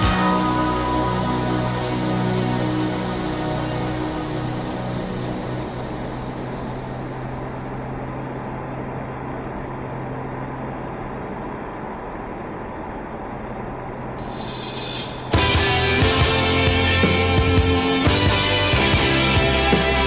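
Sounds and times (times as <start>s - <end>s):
loud rock music: 0.0s - 6.3s, 15.1s - 20.0s
car engine hum: 0.0s - 13.9s
road and tyre noise: 0.0s - 14.9s.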